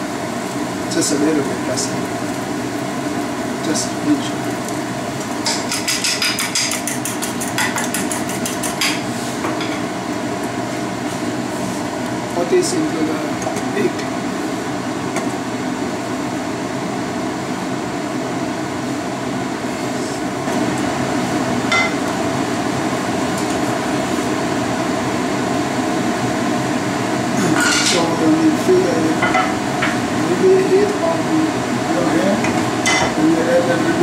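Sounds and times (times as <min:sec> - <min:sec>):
rushing kitchen noise: 0:00.0 - 0:15.9.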